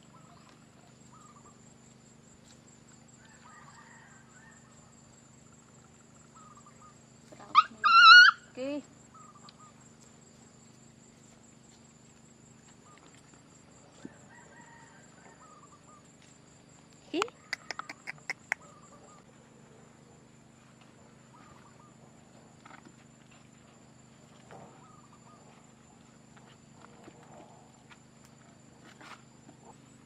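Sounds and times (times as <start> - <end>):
faint poultry calls: 0.0 - 1.6, 3.2 - 5.0, 6.2 - 9.8, 13.8 - 16.1, 17.3 - 19.9, 21.2 - 22.8, 24.3 - 26.0.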